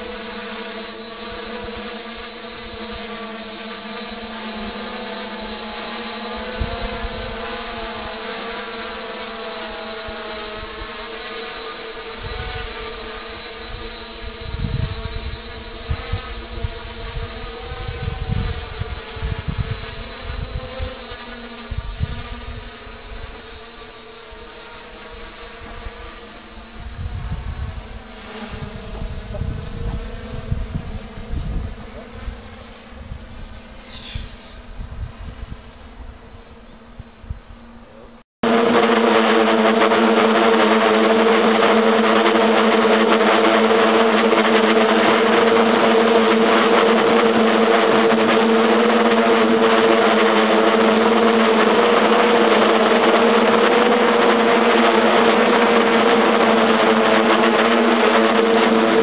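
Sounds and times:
wind rumbling on microphone: 0:00.0 - 0:38.2
drone propellers buzzing: 0:00.0 - 0:59.0.

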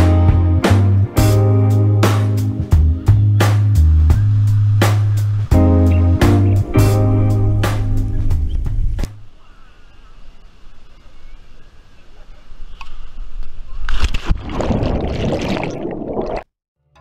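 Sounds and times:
person jumping into water splash: 0:14.0 - 0:16.5
underwater bubbling and churning: 0:14.3 - 0:16.5.

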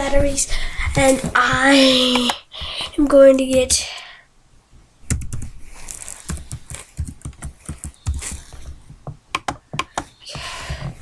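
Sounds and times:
rapid clicking and tapping: 0:00.9 - 0:02.4, 0:05.1 - 0:11.0.

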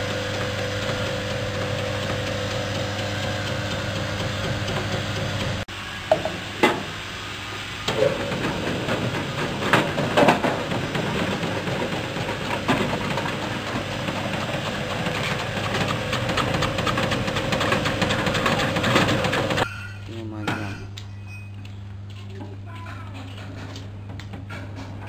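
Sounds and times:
slicing machine motor hum: 0:00.0 - 0:05.7, 0:07.8 - 0:19.6
knocks and clatters: 0:07.9 - 0:19.7.

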